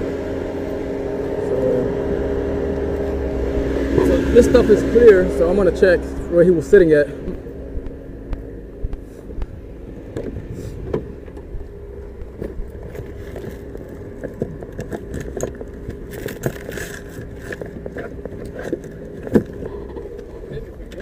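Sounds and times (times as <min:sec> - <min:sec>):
vehicle hum: 0:00.0 - 0:21.0
items being moved and handled: 0:12.1 - 0:21.0.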